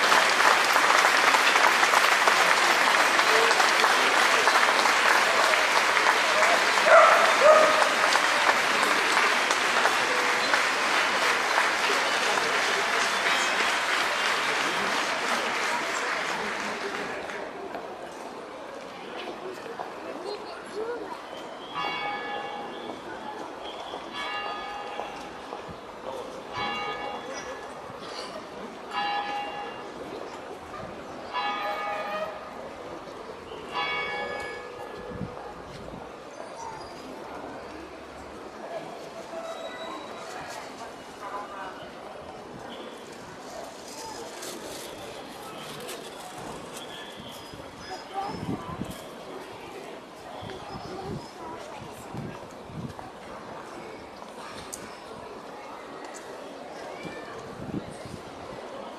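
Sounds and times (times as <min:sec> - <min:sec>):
crowd applauding: 0:00.0 - 0:17.6
large church bell ringing: 0:21.8 - 0:22.7, 0:26.5 - 0:27.4, 0:28.9 - 0:30.0, 0:31.3 - 0:32.6, 0:33.7 - 0:35.2.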